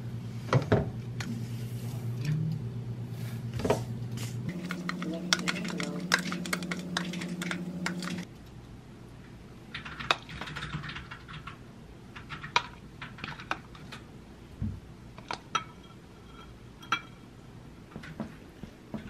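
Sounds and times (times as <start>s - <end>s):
low hum: 1.0s - 8.3s.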